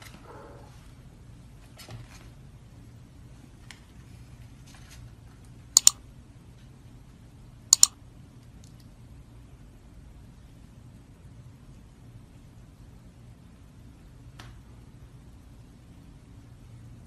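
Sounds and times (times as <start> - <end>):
faint room noise: 0.0 - 17.0
sharp double clicks: 5.8 - 6.0, 7.8 - 8.0.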